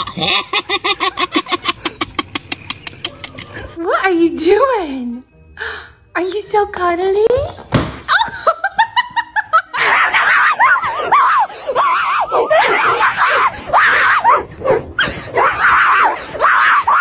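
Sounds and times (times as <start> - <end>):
person laughing: 0.0 - 3.8
shrill shrieking laughter: 0.0 - 3.8, 9.6 - 14.4, 15.0 - 17.0.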